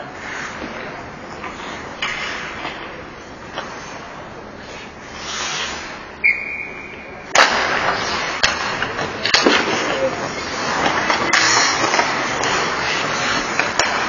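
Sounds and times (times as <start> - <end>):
skates scraping ice: 0.0 - 14.0
high whistle: 6.2 - 7.2
stick hitting puck: 7.3 - 14.0.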